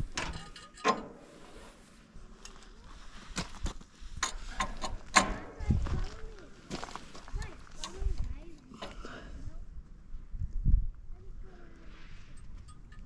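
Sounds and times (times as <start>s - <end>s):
steel chain clanking: 0.1s - 1.6s.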